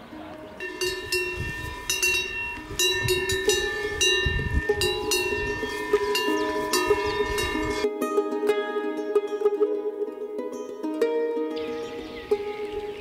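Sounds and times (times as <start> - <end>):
cowbell clanking: 0.6 - 7.9.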